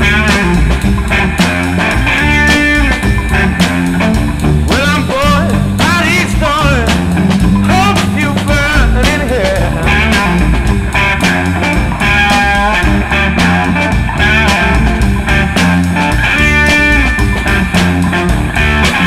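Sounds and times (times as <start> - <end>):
rock music with guitar: 0.0 - 19.0.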